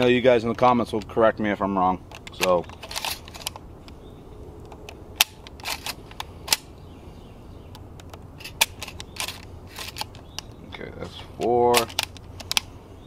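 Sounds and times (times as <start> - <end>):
shotgun shells loading clicks: 2.0 - 4.0, 4.6 - 6.7, 7.7 - 10.6, 11.4 - 12.8.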